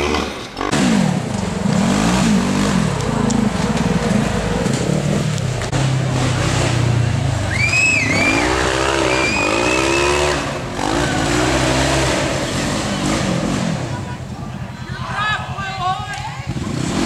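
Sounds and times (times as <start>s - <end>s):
engine revving hard: 0.0s - 14.0s, 16.5s - 17.0s
high-pitched squeal: 7.4s - 13.4s.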